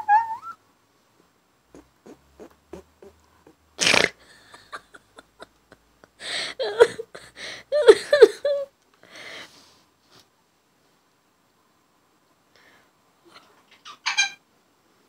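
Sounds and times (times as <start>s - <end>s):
parrot raspy chattering calls: 1.7s - 4.6s, 13.4s - 14.4s.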